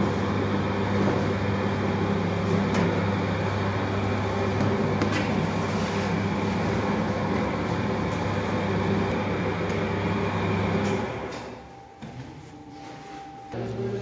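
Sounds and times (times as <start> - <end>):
bakery machinery humming: 0.0 - 14.0.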